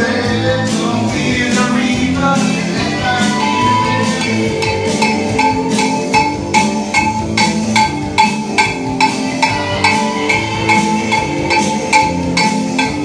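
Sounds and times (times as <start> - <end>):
loud music: 0.0 - 13.0
cowbell struck with a stick: 3.9 - 13.0.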